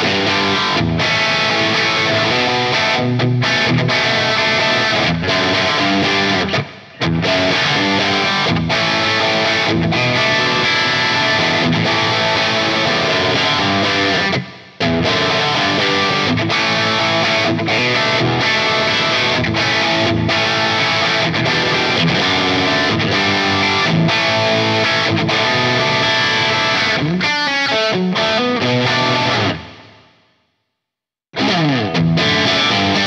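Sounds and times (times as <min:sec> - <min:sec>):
overdriven electric guitar riff: 0:00.0 - 0:30.2, 0:31.3 - 0:33.0.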